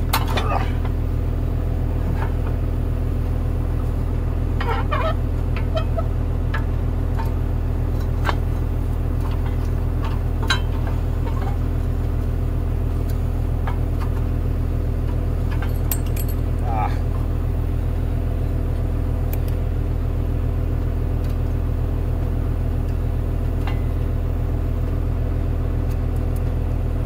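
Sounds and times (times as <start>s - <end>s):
engine idling: 0.0s - 27.0s
hand tools clinking on metal: 15.5s - 16.7s.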